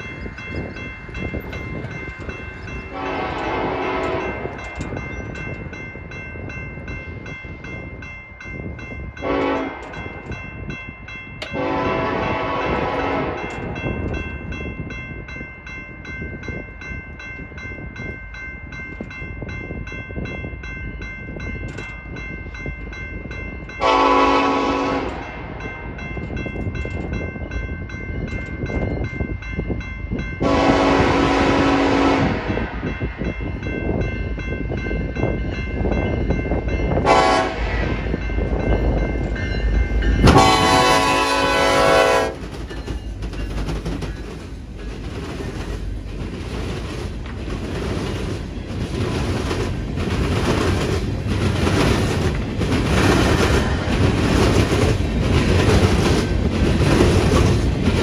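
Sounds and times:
crossing bell ringing: 0.0s - 58.0s
train rumble: 0.0s - 58.0s
locomotive horn blasts: 2.9s - 4.5s, 9.2s - 9.9s, 11.5s - 13.6s, 23.8s - 25.4s, 30.4s - 32.8s, 37.0s - 37.9s, 40.2s - 42.4s.

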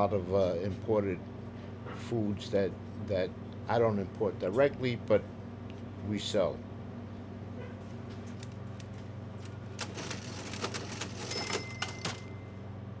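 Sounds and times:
low steady hum: 0.0s - 13.0s
cash register keys clicking: 8.3s - 12.4s.

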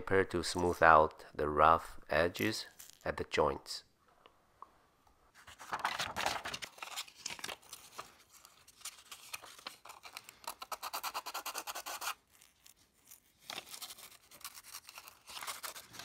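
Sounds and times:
sandpaper rubbing on plastic: 10.6s - 12.2s.

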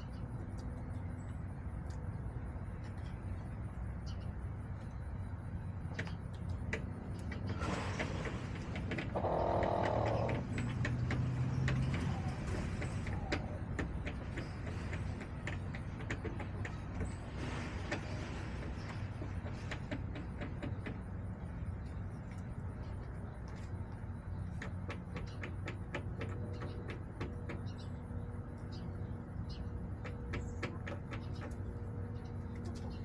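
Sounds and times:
low rumble of traffic: 0.0s - 33.0s.

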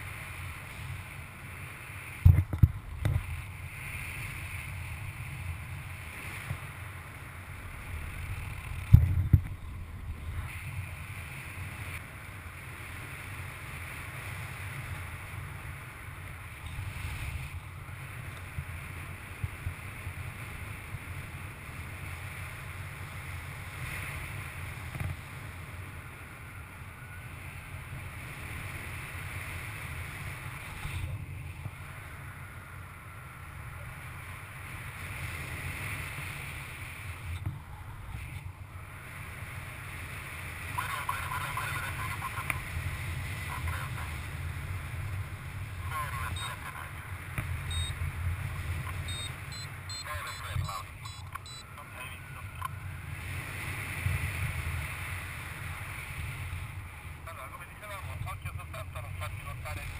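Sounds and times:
wind buffeting microphone: 0.0s - 12.8s.

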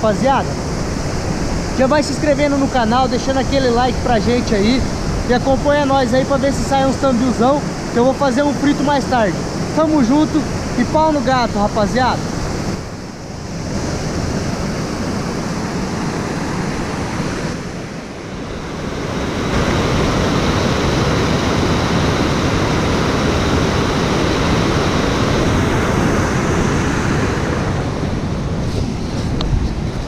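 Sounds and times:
waterfall and stream rapids rushing: 0.0s - 30.0s.

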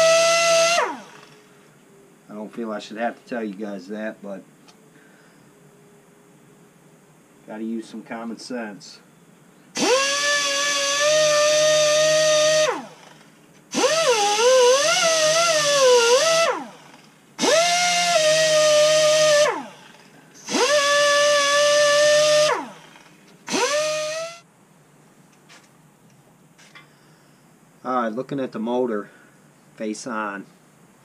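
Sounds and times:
pneumatic die grinder whine: 0.0s - 1.5s, 9.7s - 24.4s.

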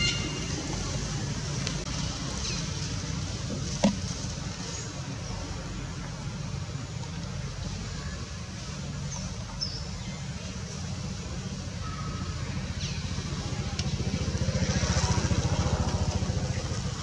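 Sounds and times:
passing vehicle engine: 10.3s - 17.0s.

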